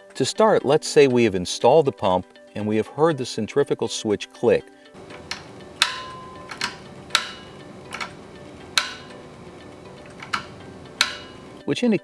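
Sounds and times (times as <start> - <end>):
motor start switch clicking: 5.0 - 11.6.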